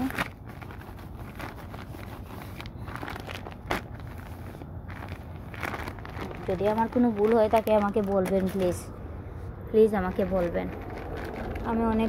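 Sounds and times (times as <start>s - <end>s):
plastic packet crinkling: 0.0s - 8.8s, 10.1s - 12.0s.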